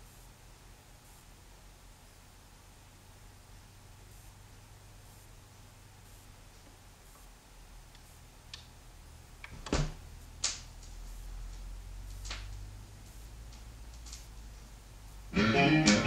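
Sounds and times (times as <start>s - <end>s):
low steady hum: 0.0s - 16.0s
sharp vinyl pops: 9.4s - 14.5s
vinyl surface crackle: 10.2s - 14.8s.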